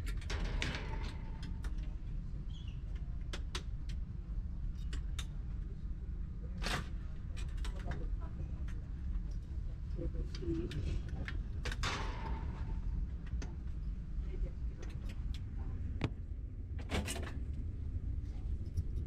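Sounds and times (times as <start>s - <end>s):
air-handling machinery hum: 9.5s - 19.0s.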